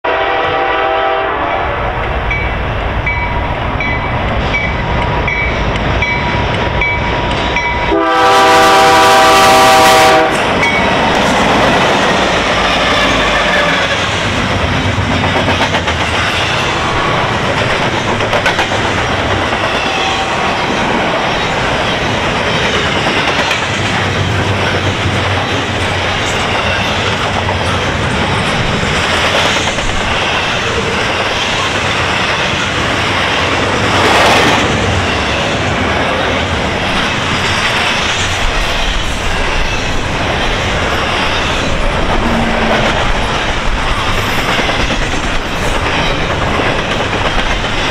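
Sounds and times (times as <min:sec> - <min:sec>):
locomotive horn blast: 0:00.0 - 0:02.0, 0:07.9 - 0:10.5
freight train rumble: 0:00.0 - 0:47.9
wheels clacking over rail joints: 0:10.4 - 0:35.4.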